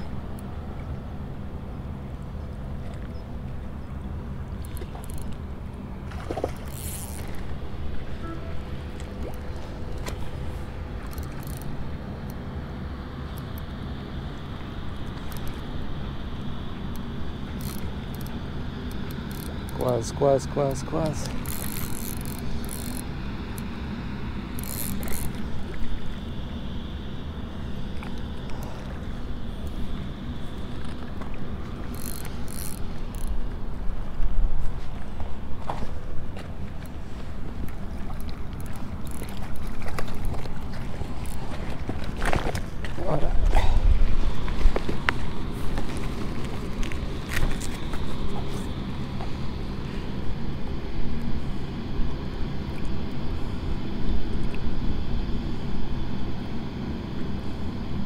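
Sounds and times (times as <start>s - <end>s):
fishing reel whirring: 4.5s - 5.4s, 6.4s - 12.4s, 13.2s - 26.2s, 27.0s - 34.1s, 36.8s - 42.4s
wind rumble on microphone: 28.8s - 56.8s.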